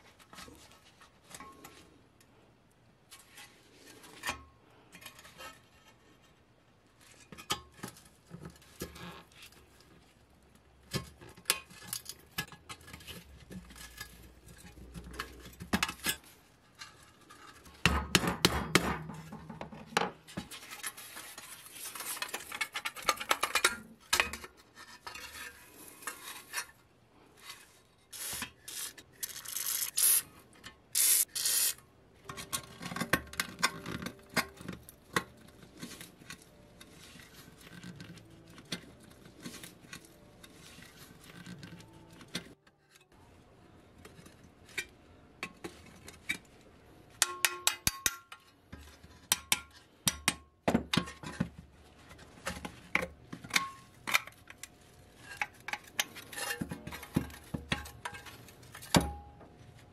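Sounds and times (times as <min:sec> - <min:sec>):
pliers clicking on metal parts: 0:28.2 - 0:31.8.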